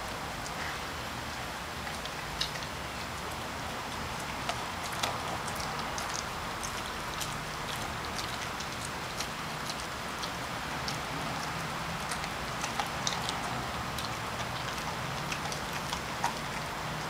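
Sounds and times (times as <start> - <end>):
dog chewing wet crunches: 0.1 - 17.0.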